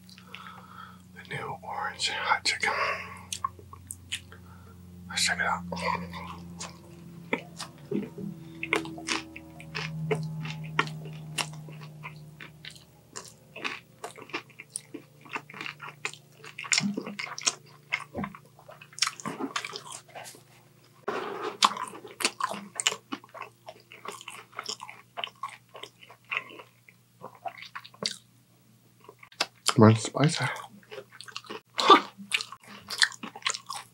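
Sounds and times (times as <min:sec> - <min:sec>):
low hum: 0:00.0 - 0:22.2
chewing crispy food: 0:02.6 - 0:04.6, 0:05.2 - 0:28.3, 0:29.0 - 0:33.9.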